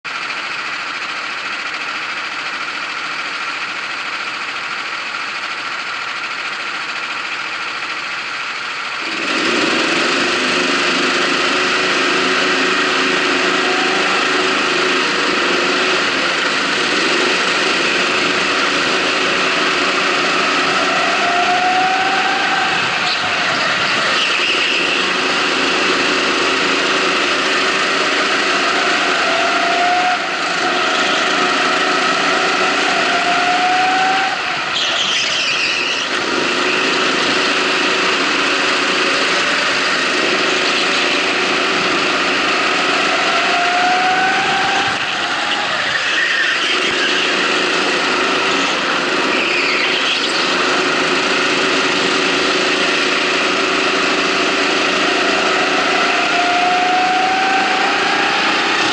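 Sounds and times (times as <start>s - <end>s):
go-kart engine revving: 0.0s - 58.9s
tyre squeal: 28.4s - 36.2s, 43.0s - 50.6s.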